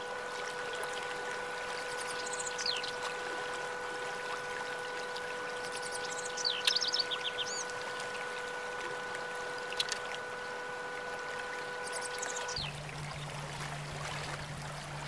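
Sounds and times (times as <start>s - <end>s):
faint steady hum: 0.0s - 15.0s
small birds chirping trills: 1.7s - 3.0s, 4.9s - 10.6s, 11.5s - 12.8s.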